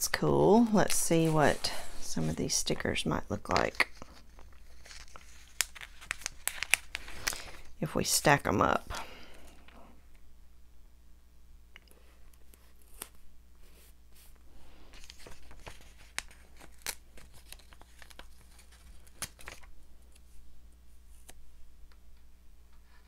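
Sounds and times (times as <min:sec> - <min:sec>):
paper rustling: 0:03.5 - 0:07.7, 0:14.9 - 0:20.3.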